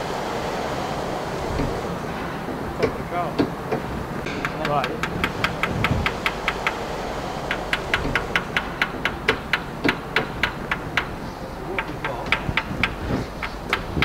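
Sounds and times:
electric fuel pump ticking: 0.0s - 14.0s.

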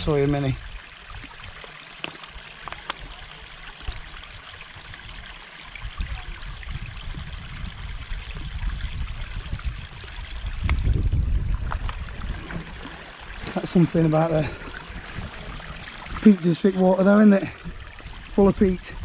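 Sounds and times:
water trickling: 0.0s - 19.0s
wind rumble on microphone: 3.8s - 16.4s, 17.4s - 19.0s.

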